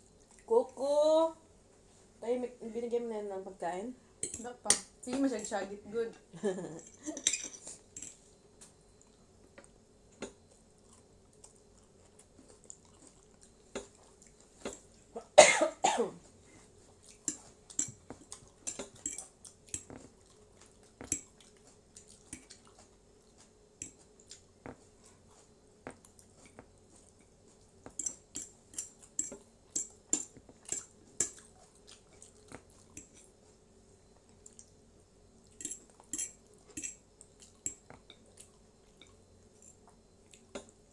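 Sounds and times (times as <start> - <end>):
faint steady hum: 0.0 - 40.9
person chewing noodles: 10.4 - 15.1, 16.6 - 40.8
person coughing: 15.2 - 16.2
fork and chopsticks tapping plates: 27.9 - 31.4, 35.6 - 37.0.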